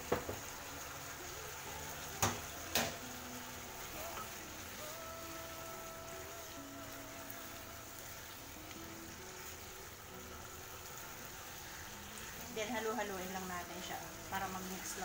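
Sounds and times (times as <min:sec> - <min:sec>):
stew sizzling in a pot: 0:00.0 - 0:15.0
utensils knocking against pot: 0:02.2 - 0:03.0.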